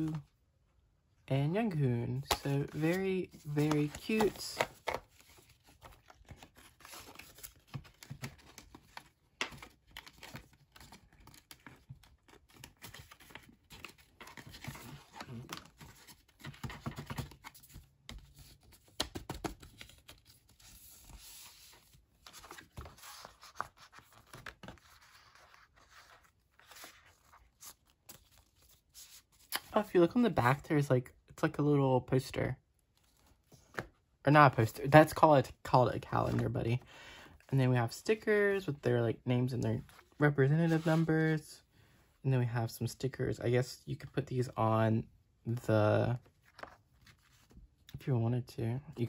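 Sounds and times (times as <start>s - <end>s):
paper rustling and crinkling: 2.3s - 29.7s, 46.2s - 47.7s.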